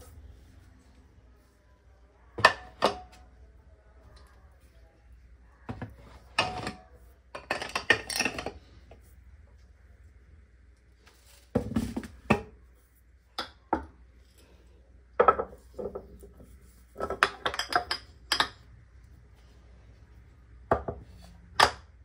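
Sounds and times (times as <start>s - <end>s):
glass jars clinking and knocking: 2.4s - 3.2s, 5.7s - 8.6s, 15.2s - 16.2s, 17.0s - 18.7s.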